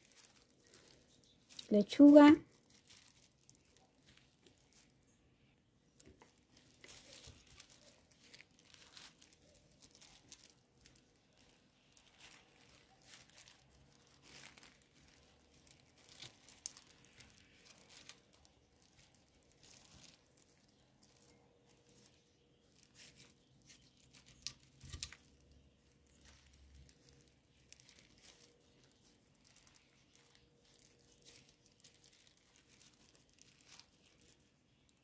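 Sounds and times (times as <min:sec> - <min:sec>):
plastic glove crinkling: 0:00.0 - 0:35.0
lettuce leaves tearing: 0:06.5 - 0:22.2, 0:22.8 - 0:34.4.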